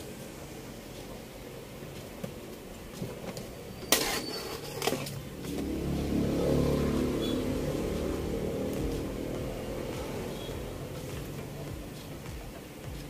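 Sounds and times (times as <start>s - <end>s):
vehicle engine running: 5.2s - 12.6s.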